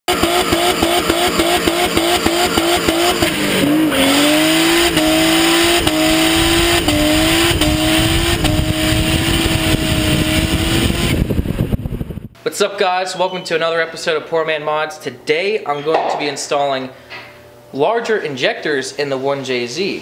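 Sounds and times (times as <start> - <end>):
car engine rumble: 0.1 - 12.4.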